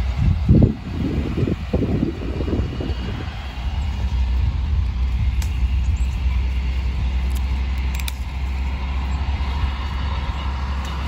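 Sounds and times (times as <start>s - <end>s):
wind rumbling on microphone: 0.0s - 11.0s
faint clicks and leaf rustles: 2.6s - 11.0s.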